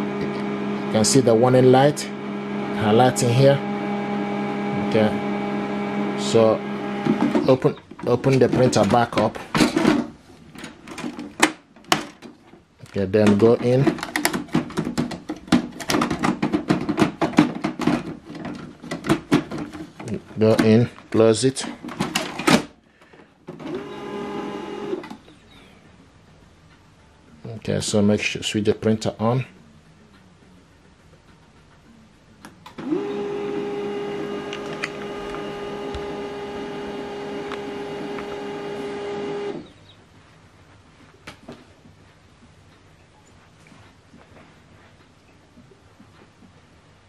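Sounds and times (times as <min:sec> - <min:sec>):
printer motor whine: 0:00.0 - 0:07.5, 0:23.6 - 0:25.2, 0:32.8 - 0:39.7
plastic clicks and knocks: 0:10.6 - 0:20.8.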